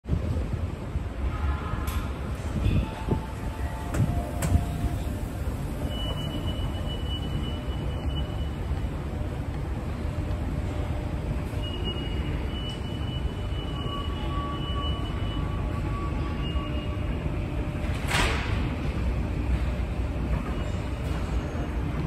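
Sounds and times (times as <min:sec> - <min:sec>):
escalator mechanical rumble: 0:02.4 - 0:22.0
second steady tone: 0:02.6 - 0:17.3.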